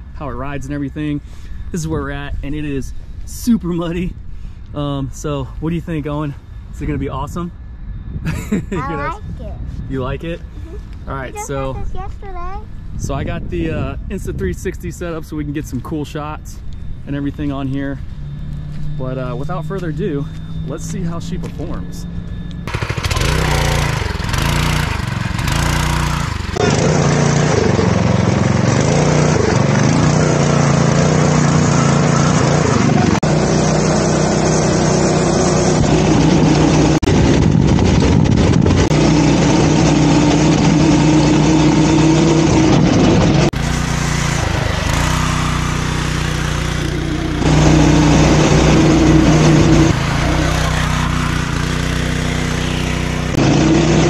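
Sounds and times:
go-kart engine revving: 22.7s - 54.0s.

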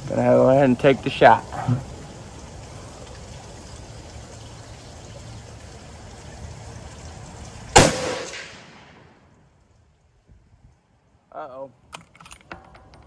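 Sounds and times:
rifle shot with echo: 7.8s - 9.1s.

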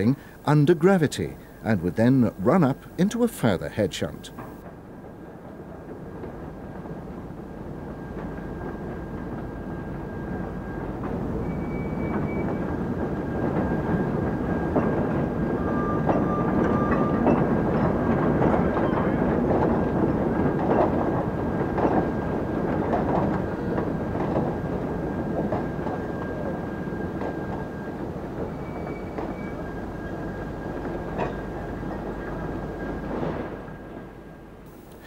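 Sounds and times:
thin high whine: 0.0s - 4.6s, 34.7s - 35.0s
wagon wheels rumbling on rail: 4.3s - 35.0s.

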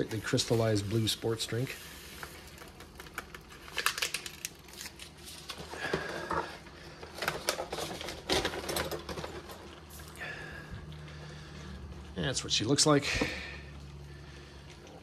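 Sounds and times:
drink packet crinkling: 2.2s - 5.8s.

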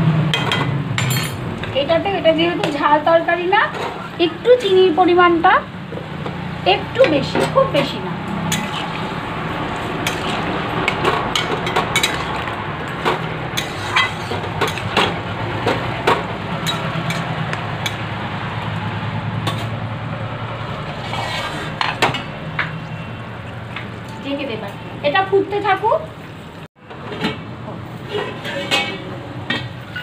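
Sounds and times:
spatula scraping a metal pan: 8.4s - 15.0s, 20.8s - 22.2s, 28.0s - 29.2s.

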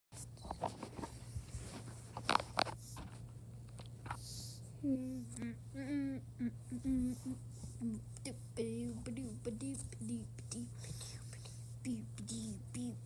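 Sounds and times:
fingers rustling and tapping phone: 0.2s - 4.2s
steady low hum: 0.2s - 13.0s
person speaking: 4.8s - 13.0s.

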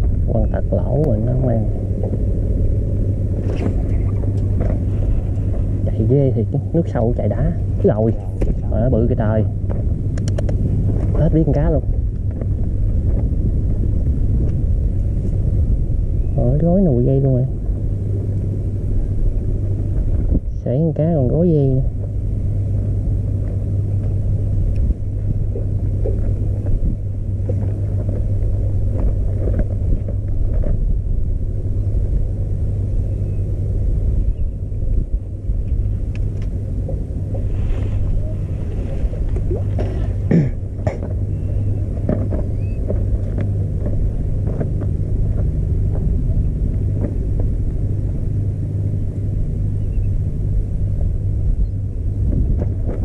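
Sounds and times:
motor droning: 0.0s - 53.0s
small clicks and knocks: 9.7s - 10.6s.

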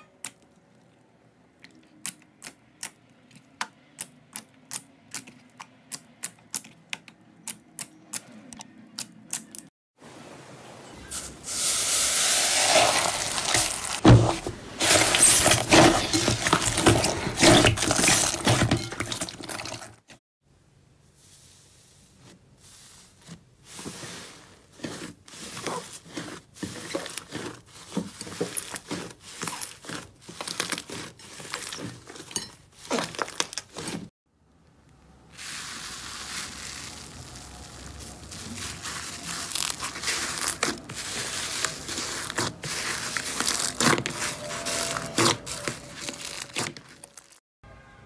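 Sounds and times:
foamy slime crackling: 11.4s - 14.0s, 35.2s - 47.4s
sticky slime squelching: 23.2s - 34.1s, 35.2s - 47.4s.

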